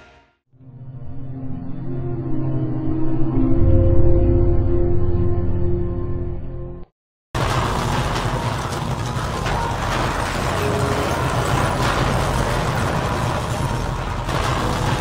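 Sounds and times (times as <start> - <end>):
earthquake rumble: 7.4 - 15.0.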